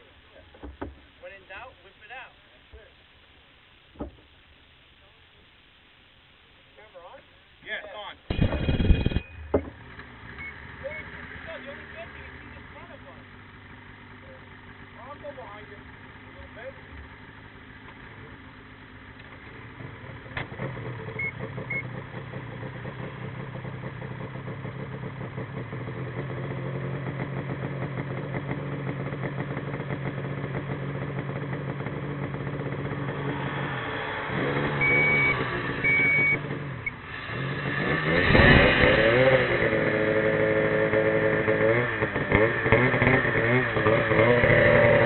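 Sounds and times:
snowmobile engine revving: 7.8s - 17.2s, 19.8s - 45.0s.

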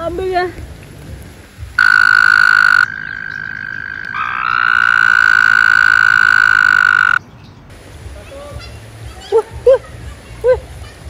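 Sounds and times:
toads trilling: 1.8s - 7.2s.

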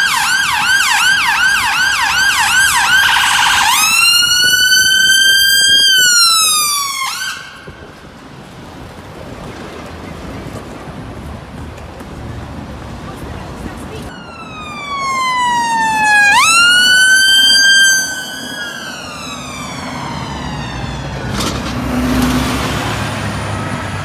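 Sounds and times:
ambulance siren: 0.0s - 8.4s, 14.1s - 24.0s
low street traffic: 0.0s - 24.0s.

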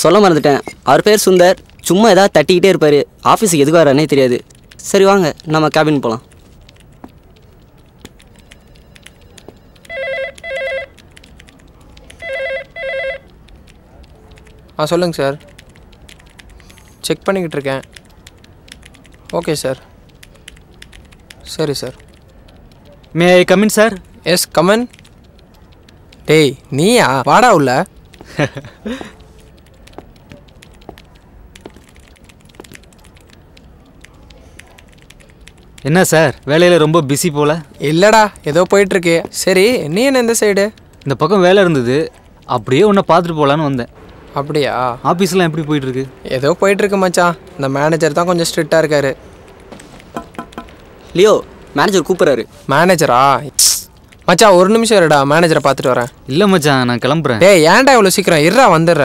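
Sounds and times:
telephone trilling ring: 9.6s - 11.0s, 12.2s - 13.3s
keyboard key clicks: 13.3s - 23.2s, 27.8s - 36.0s, 45.4s - 52.0s.

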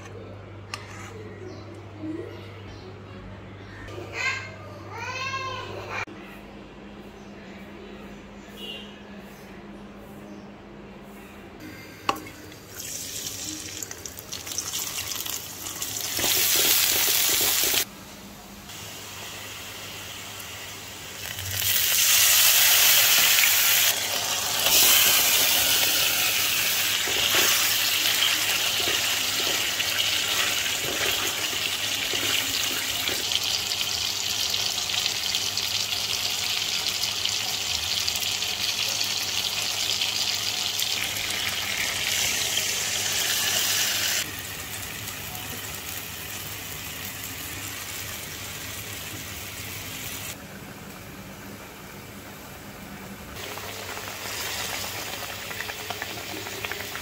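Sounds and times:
fish sizzling in hot oil: 12.7s - 17.9s, 18.9s - 50.4s, 53.4s - 57.0s.

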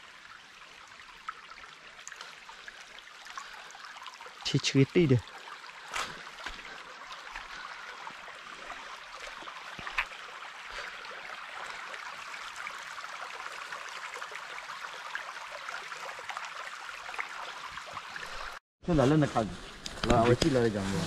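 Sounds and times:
creek trickling over stones: 0.0s - 21.0s.

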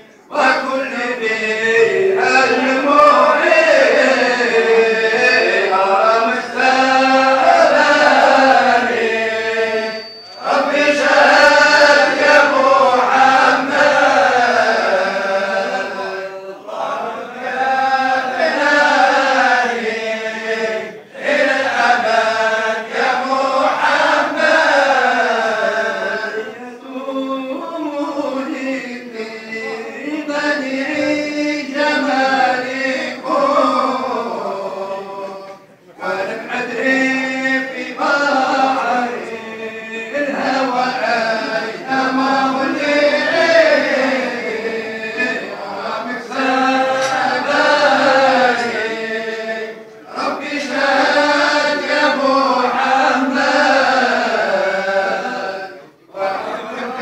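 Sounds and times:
group of men chanting: 0.0s - 57.0s.

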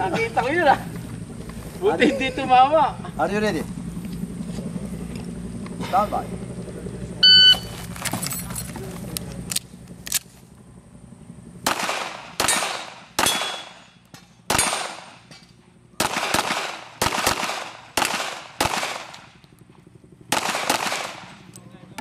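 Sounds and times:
pistol shots echoing: 11.6s - 15.3s, 16.0s - 19.3s, 20.3s - 21.5s.

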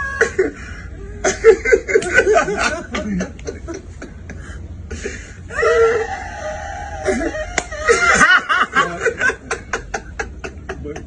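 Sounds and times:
men laughing loudly: 0.0s - 11.0s.

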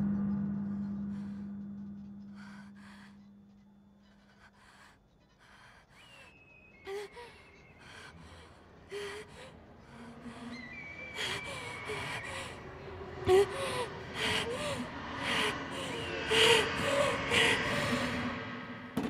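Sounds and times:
low held tone: 0.0s - 4.1s
woman breathing shakily and gasping: 1.0s - 19.0s.

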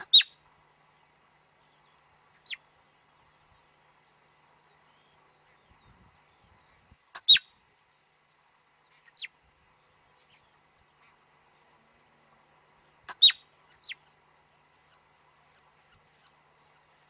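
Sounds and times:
marmot alarm whistles: 13.2s - 13.4s.

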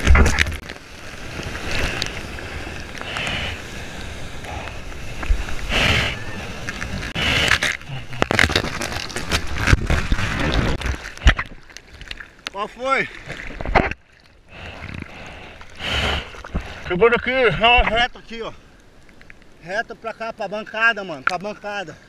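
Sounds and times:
surf wave rushing and splashing: 0.0s - 7.6s.

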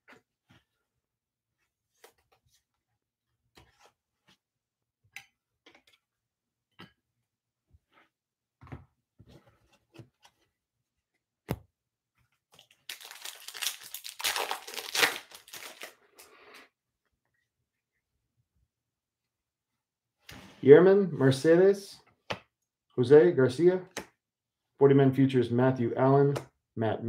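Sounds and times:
foil wrapper tearing and crinkling: 12.6s - 16.1s.

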